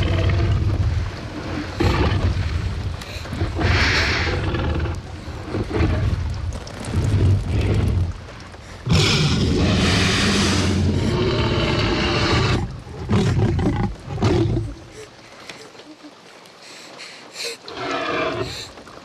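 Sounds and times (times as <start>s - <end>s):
snorts and breaths: 3.0s - 4.5s, 16.6s - 18.8s
dinosaur growling roar: 8.9s - 14.7s.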